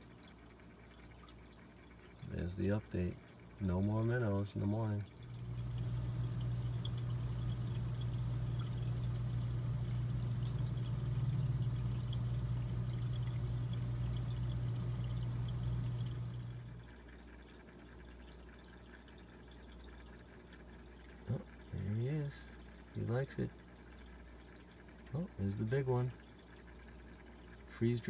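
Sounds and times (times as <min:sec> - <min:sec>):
water bubbling and trickling: 0:00.0 - 0:28.0
air pump humming: 0:05.2 - 0:17.0.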